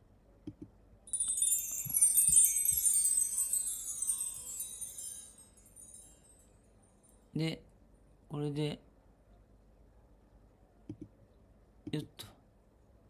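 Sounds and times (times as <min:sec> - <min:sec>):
soft clicks: 0:00.4 - 0:00.7, 0:10.9 - 0:11.2
chime tree sweep: 0:01.1 - 0:06.7.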